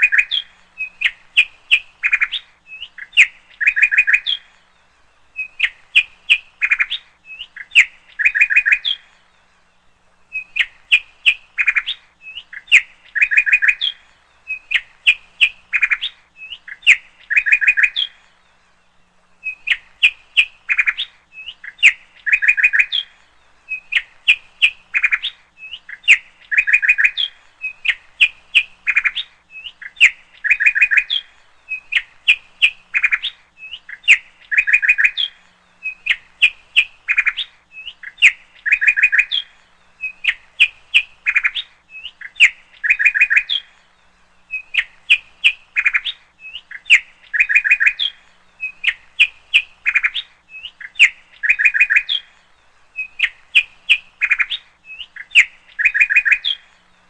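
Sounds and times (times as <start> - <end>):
bird chirping: 0.0 - 57.0.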